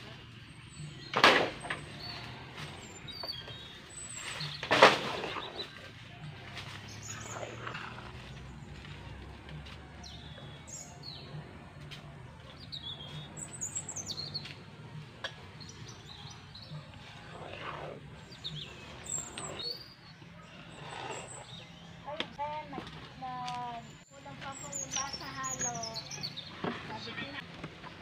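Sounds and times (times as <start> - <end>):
small birds chirping: 0.0 - 28.0.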